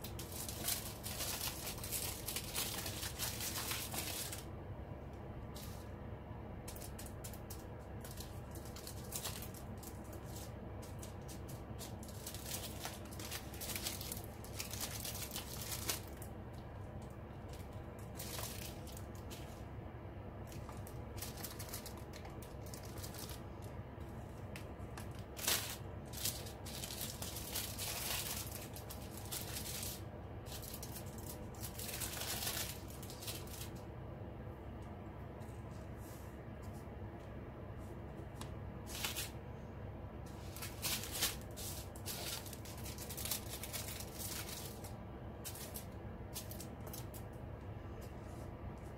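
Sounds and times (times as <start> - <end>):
plastic bags crinkling: 0.0 - 4.5, 6.6 - 19.6, 20.4 - 33.8, 38.8 - 39.4, 40.4 - 47.3
steady low hum: 0.0 - 48.9.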